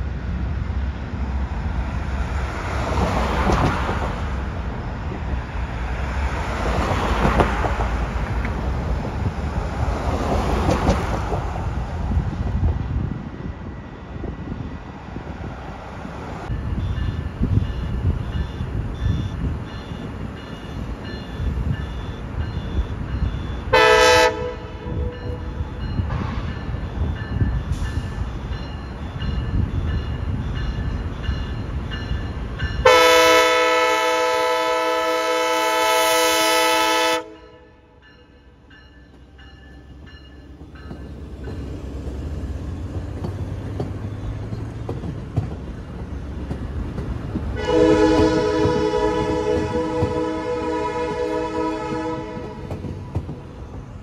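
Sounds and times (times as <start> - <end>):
train rumbling: 0.0 - 54.0
locomotive horn blasts: 23.6 - 25.4, 32.8 - 38.0, 47.6 - 52.7.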